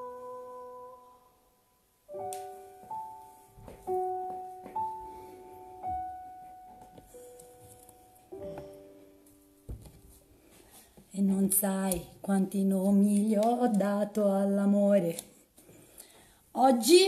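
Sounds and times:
piano chords ringing: 0.0s - 10.4s.

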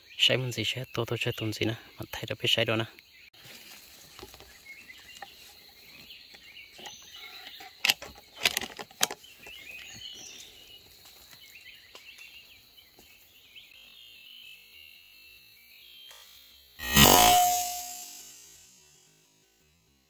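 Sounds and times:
insect drone: 10.0s - 20.0s.

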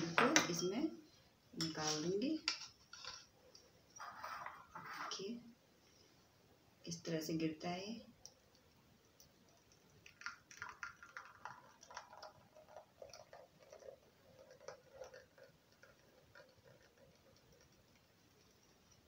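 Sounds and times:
thick liquid pouring into bowl: 9.6s - 19.0s.

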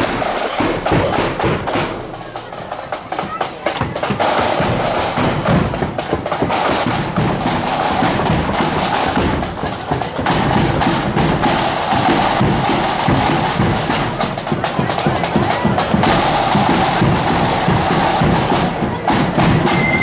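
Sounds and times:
drums beating: 0.0s - 20.0s
flutes playing a tune: 19.5s - 20.0s.

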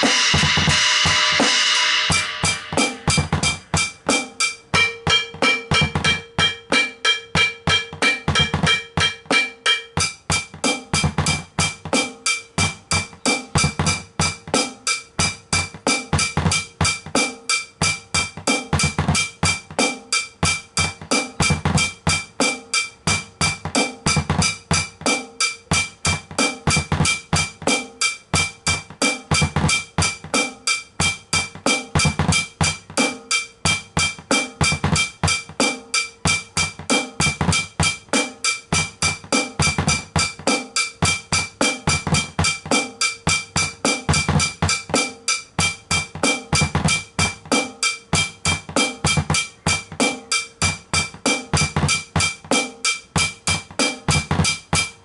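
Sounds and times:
double pedal bass drum beats: 0.0s - 55.0s
muffled snare drum strokes: 0.0s - 55.0s
steady high ring: 4.6s - 10.2s.

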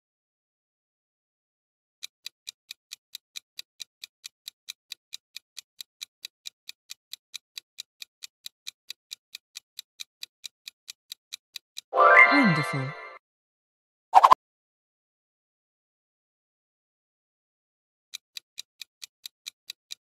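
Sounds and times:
clock ticking: 2.0s - 11.9s, 18.1s - 20.0s.

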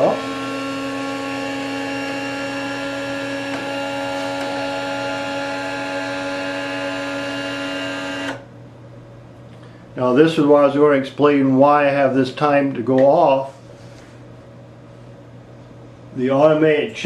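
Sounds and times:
small electric motor humming: 0.0s - 8.4s.

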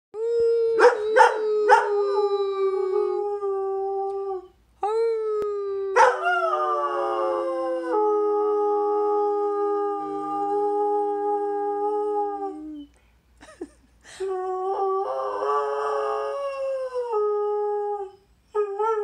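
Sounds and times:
dog howling: 0.6s - 4.5s, 5.9s - 12.6s.

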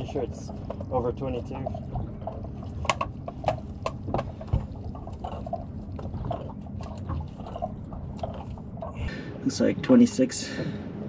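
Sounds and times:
steady low rumble: 0.0s - 11.0s
knocks and taps on boat: 0.6s - 4.9s.

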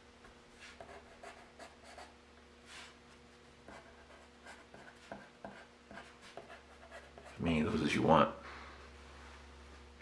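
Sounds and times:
pencil scratching on paper: 0.6s - 2.1s, 3.6s - 7.4s.

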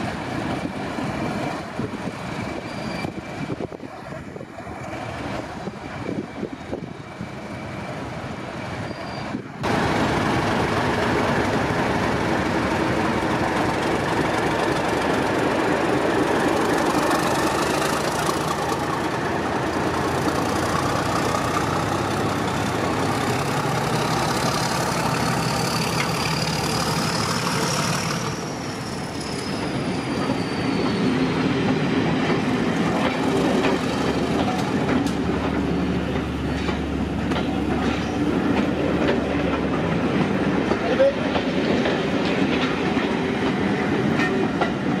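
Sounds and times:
diesel locomotive running: 0.0s - 45.0s.

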